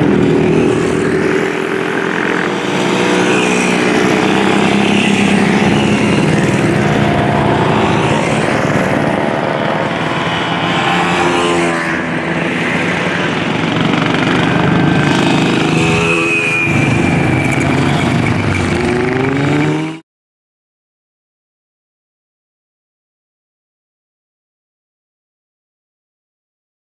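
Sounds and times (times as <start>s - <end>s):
motorcycles riding past: 0.0s - 20.0s.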